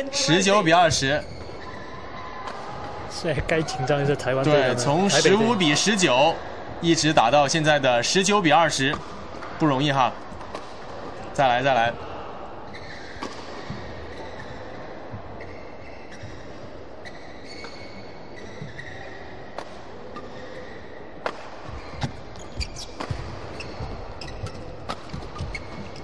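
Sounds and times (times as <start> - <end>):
shoes squeaking on court: 0.0 - 2.8, 12.7 - 26.0
sports hall ambient noise: 0.0 - 26.0
rackets striking shuttlecock: 22.8 - 23.4.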